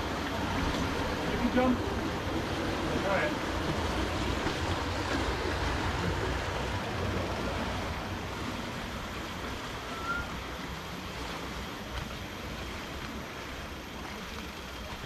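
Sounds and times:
faint squeak: 0:09.8 - 0:10.4.

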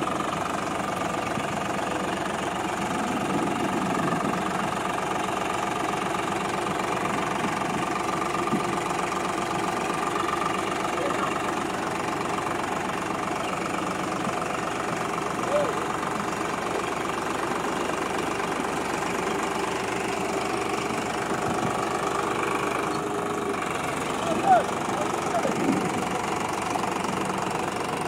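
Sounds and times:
diesel tractor engine running: 0:00.0 - 0:28.0.

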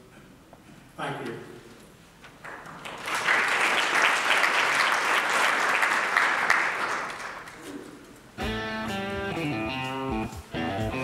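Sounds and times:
audience applauding: 0:02.4 - 0:07.7
guitar music: 0:08.4 - 0:11.0.

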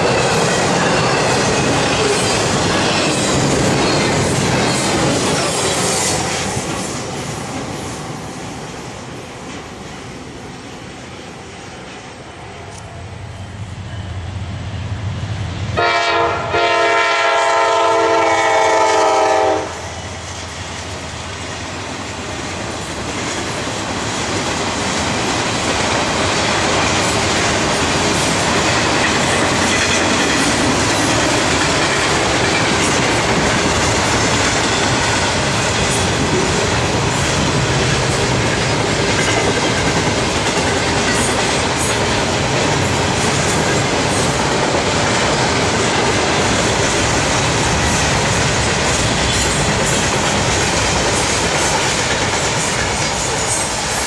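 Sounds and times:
train wheels rumbling on rails: 0:00.0 - 0:54.0
locomotive air horn: 0:15.8 - 0:19.9.

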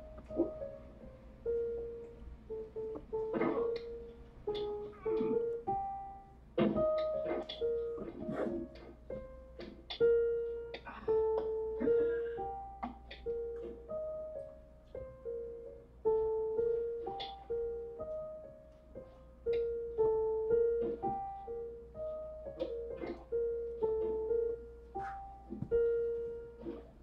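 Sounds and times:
synthesizer piano melody: 0:00.0 - 0:27.0.

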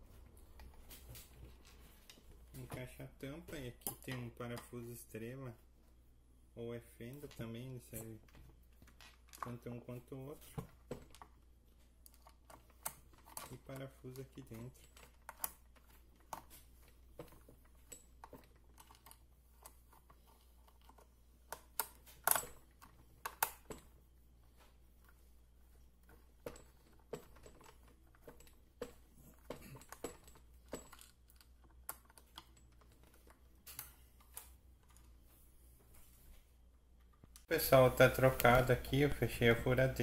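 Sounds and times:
screwdriver clicking and scraping: 0:12.0 - 0:23.9.

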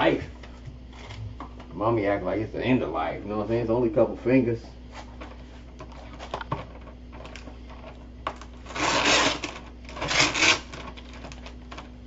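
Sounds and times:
plastic crackling: 0:05.2 - 0:12.0.

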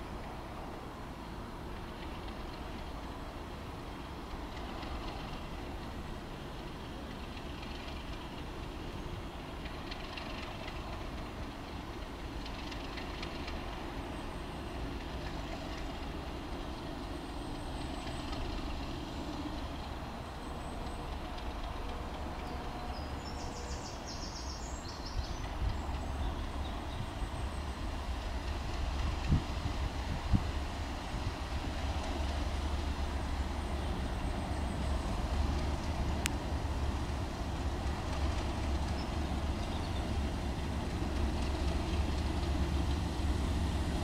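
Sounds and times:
diesel locomotive engine rumble: 0:00.0 - 0:44.0.

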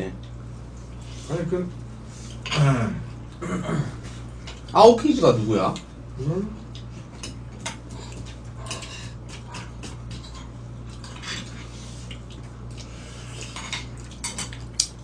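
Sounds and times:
steady low hum: 0:00.0 - 0:15.0
utensils clinking on bowls: 0:13.4 - 0:14.6.

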